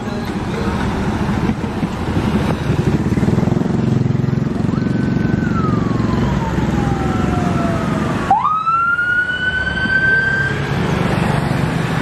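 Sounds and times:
passing traffic engines: 0.0 - 12.0
siren wailing: 4.5 - 10.6.

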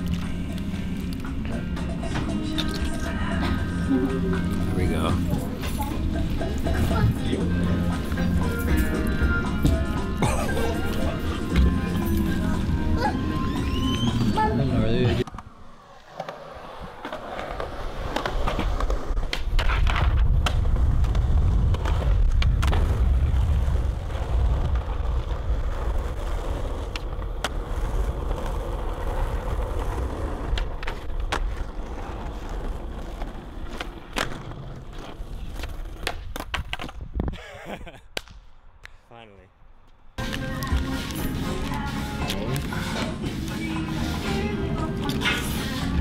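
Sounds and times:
skateboard rolling on asphalt: 0.0 - 14.4, 15.1 - 37.3, 39.9 - 46.0
skateboard clacking on ground: 25.8 - 37.1.

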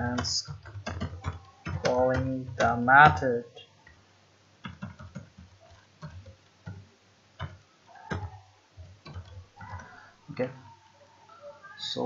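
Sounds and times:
keyboard keys clicking: 0.0 - 2.8, 4.6 - 6.8, 7.4 - 10.0.

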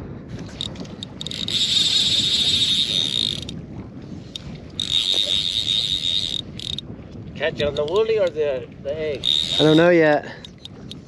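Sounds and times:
fishing reel drag ratcheting: 0.5 - 3.6, 4.3 - 6.8, 9.1 - 11.0.

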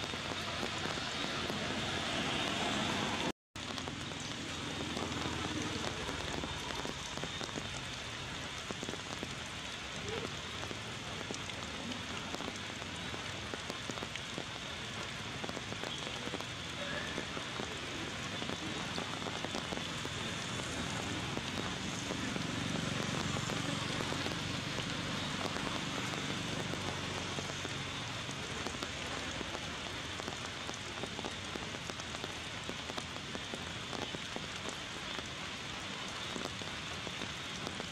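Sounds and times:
steady rain: 0.0 - 37.9.

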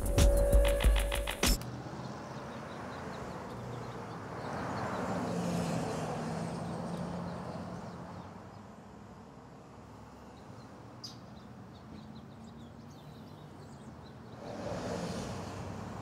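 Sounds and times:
car passing by: 1.6 - 8.3, 14.2 - 16.0.

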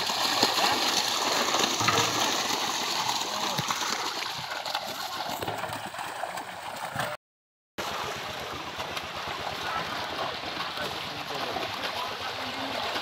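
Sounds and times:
fish thrashing in water: 0.0 - 7.2.

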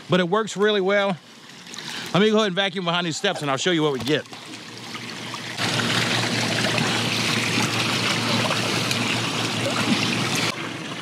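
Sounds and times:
pool vacuum churning water: 0.0 - 11.0
low motor hum: 5.1 - 11.0.

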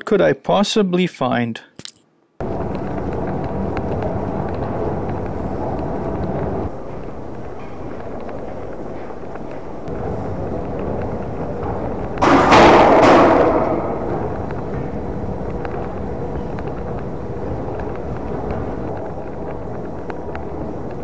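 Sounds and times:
background din and hum: 0.0 - 21.0
loud bang of kicked machine: 12.2 - 14.2.

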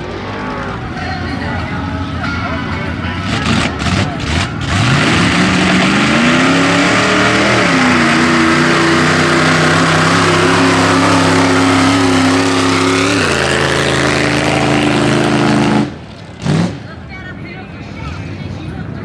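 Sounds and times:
truck engine revving: 3.1 - 17.1.

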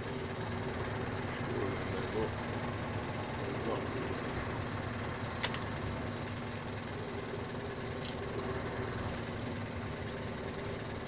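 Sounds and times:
diesel truck engine running: 0.0 - 11.0
sharp clicks: 5.4 - 5.8.

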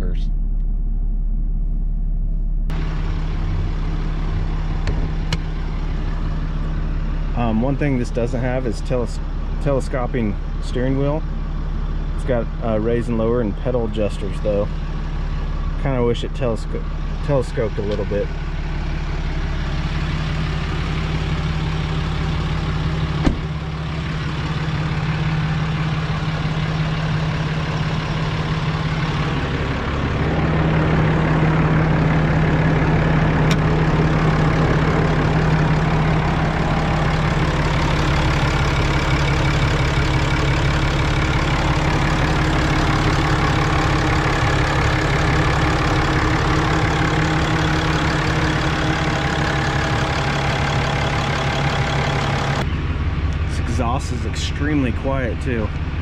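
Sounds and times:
diesel truck engine idling: 0.0 - 56.0
truck door shutting: 4.8 - 5.5, 23.1 - 23.6.

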